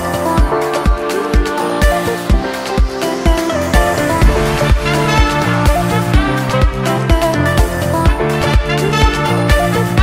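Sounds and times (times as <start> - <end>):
electronic dance music: 0.0 - 10.0
sustained synth notes: 3.0 - 6.9
kick drum beat: 4.1 - 9.2.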